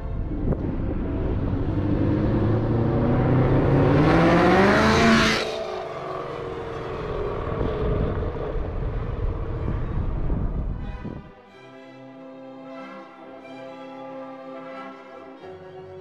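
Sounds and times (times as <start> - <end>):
car engine accelerating past: 0.2 - 10.2.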